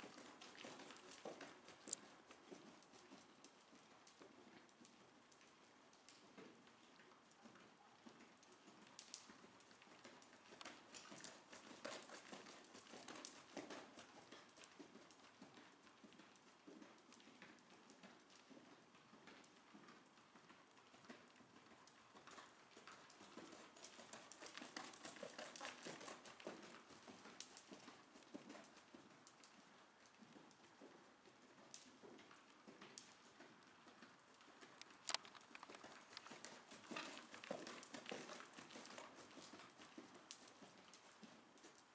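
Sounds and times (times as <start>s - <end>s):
horse hoofbeats on soft sand: 0.0s - 41.9s.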